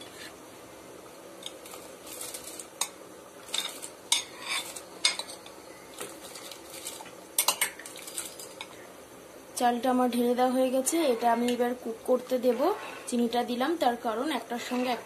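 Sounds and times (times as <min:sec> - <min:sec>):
steady low hiss: 0:00.0 - 0:15.0
metal utensils clinking on pot: 0:01.4 - 0:08.8.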